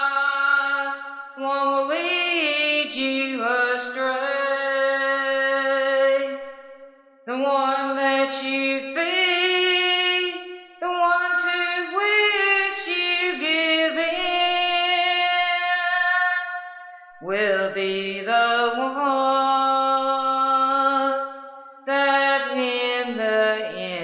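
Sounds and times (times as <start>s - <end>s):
woman singing unaccompanied: 0.0s - 6.5s, 7.3s - 24.0s.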